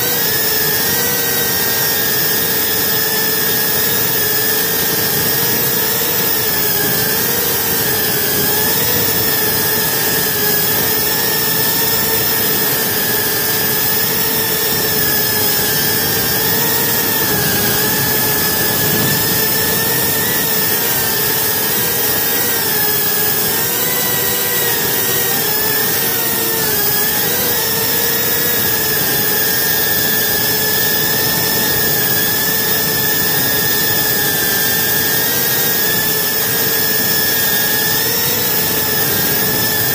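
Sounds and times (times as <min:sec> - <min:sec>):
drone propellers whining: 0:00.0 - 0:39.9.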